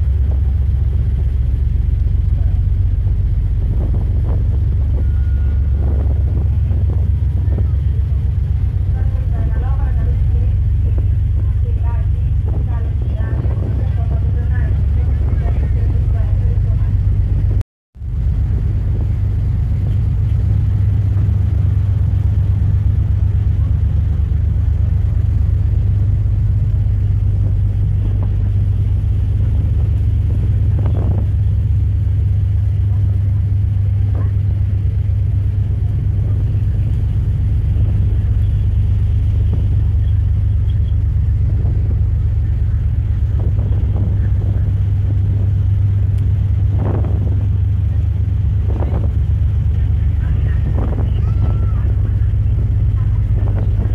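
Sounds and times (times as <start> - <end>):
churning wake: 0.0 - 53.9
ferry engines rumbling: 0.0 - 53.9.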